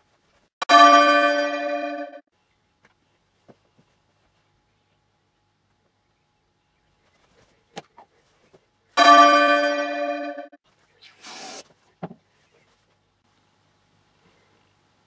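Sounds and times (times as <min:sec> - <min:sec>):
bell-like ringing tone: 0:00.7 - 0:02.2, 0:09.0 - 0:10.6
short hiss: 0:11.1 - 0:11.7.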